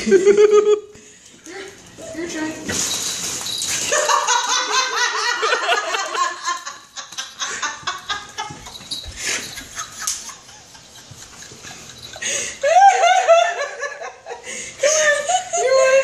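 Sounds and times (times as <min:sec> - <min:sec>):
people laughing hard: 0:03.9 - 0:16.0.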